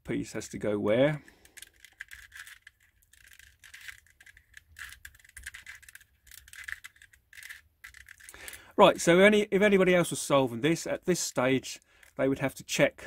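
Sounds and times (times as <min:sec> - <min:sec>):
twisty puzzle clicking: 0:01.3 - 0:08.6.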